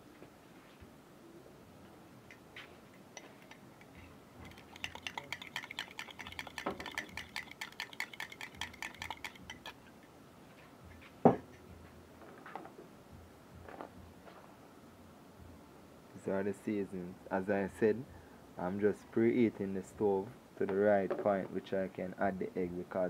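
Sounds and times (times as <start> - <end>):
fork whisking eggs in bowl: 3.1 - 9.9.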